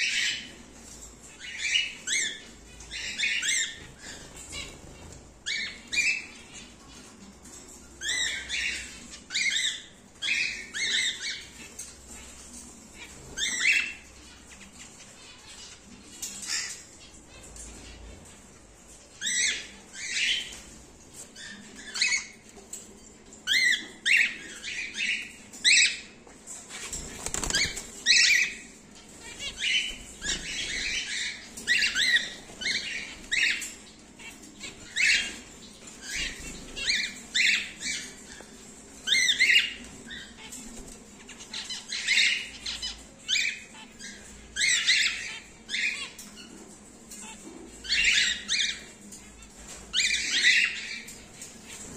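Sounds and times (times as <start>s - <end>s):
cockatiels chirping: 0.0s - 0.5s, 1.2s - 7.0s, 8.0s - 18.1s, 19.1s - 20.7s, 21.3s - 22.6s, 23.4s - 51.9s
wing flapping: 26.8s - 28.2s.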